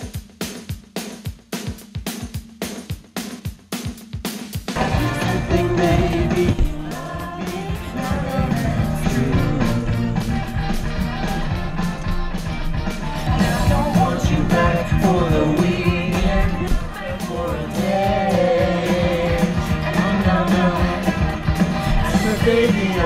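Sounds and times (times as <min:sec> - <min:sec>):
rock and roll song: 0:00.0 - 0:23.0
steady drum beat: 0:00.0 - 0:23.0
lead vocal singing: 0:04.8 - 0:23.0.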